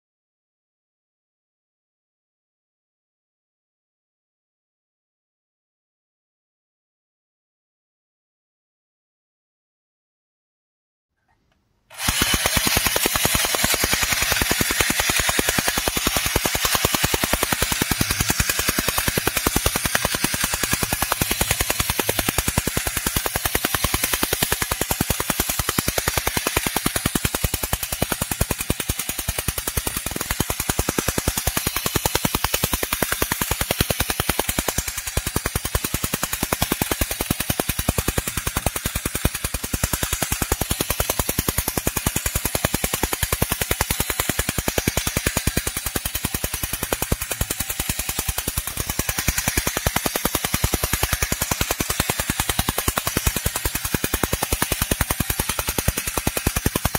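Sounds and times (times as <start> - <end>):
toy motor clattering: 11.2 - 56.9.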